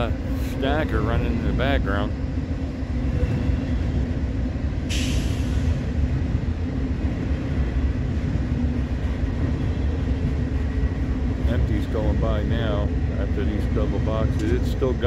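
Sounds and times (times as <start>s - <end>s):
freight train wheels rumbling: 0.0s - 15.0s
air hiss: 4.9s - 5.8s.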